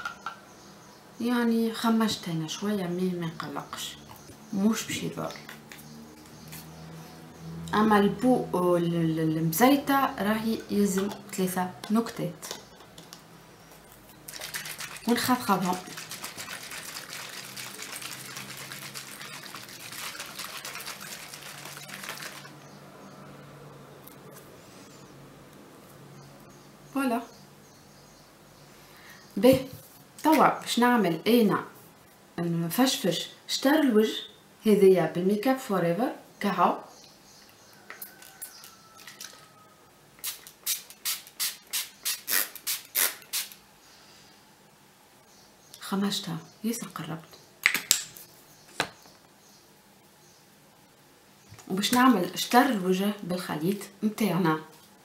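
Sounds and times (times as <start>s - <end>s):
liquid sloshing in shaken bottle: 14.2s - 22.7s
spray bottle hissing sprays: 40.2s - 43.6s.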